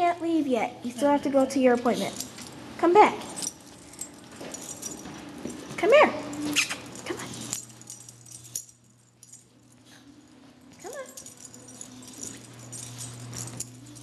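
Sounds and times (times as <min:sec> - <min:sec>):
low hum: 0:03.2 - 0:14.0.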